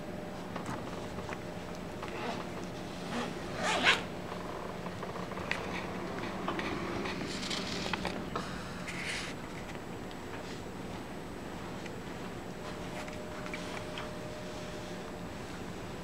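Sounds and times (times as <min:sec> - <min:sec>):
zipper rasping: 0:02.1 - 0:04.1.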